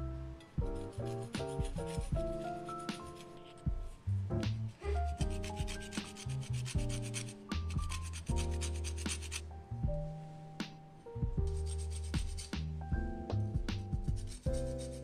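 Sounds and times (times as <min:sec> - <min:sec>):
soft background music: 0:00.0 - 0:15.0
peel scraping on metal grater: 0:05.1 - 0:09.4, 0:11.6 - 0:12.5.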